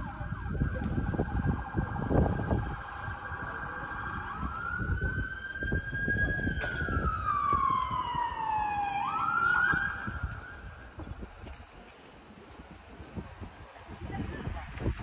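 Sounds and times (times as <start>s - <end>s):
emergency vehicle siren wailing: 0.0s - 11.1s.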